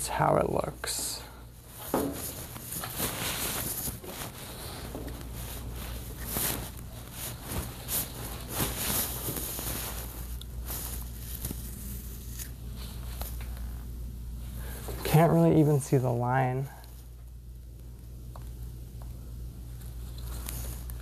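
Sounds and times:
rustling: 1.6 - 15.9, 19.6 - 21.0.

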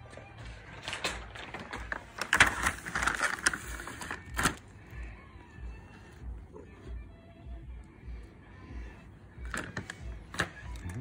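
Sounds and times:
plastic bag crinkling: 0.4 - 5.1.

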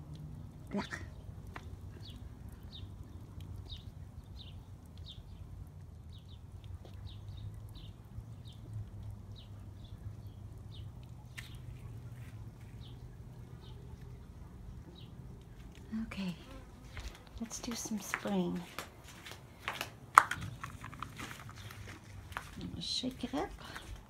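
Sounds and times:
bird chirping: 0.8 - 5.4.

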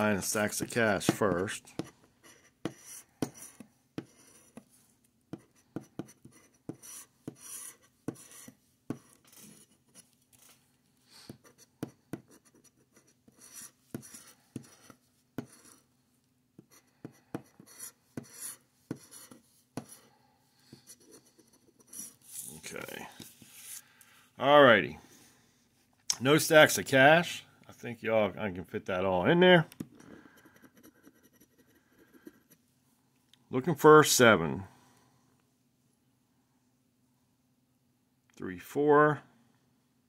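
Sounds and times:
scraper scratching lottery ticket: 5.4 - 10.5, 11.2 - 15.8.

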